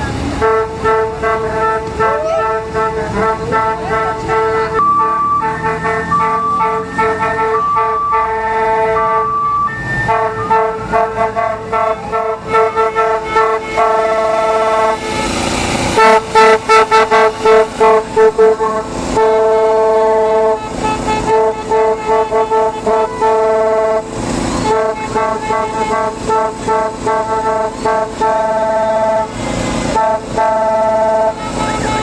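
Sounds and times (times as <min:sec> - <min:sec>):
cars driving past: 0:00.0 - 0:32.0
car horns honking: 0:00.1 - 0:32.0.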